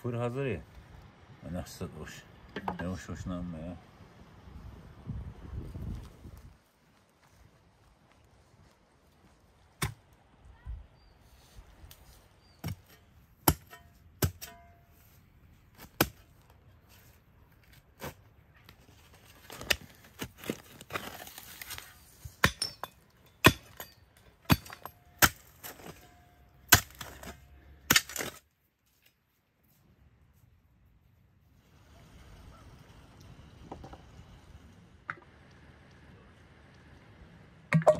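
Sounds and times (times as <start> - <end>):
digging tool striking stony soil: 9.8 - 10.0, 12.5 - 14.8, 15.8 - 16.3, 19.6 - 28.5.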